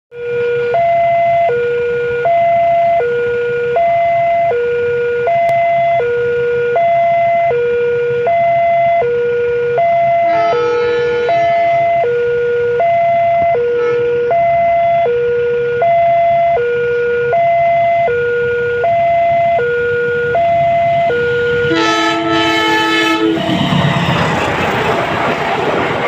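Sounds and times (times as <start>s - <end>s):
two-tone warning siren: 0.1s - 24.7s
locomotive horn: 5.0s - 23.9s.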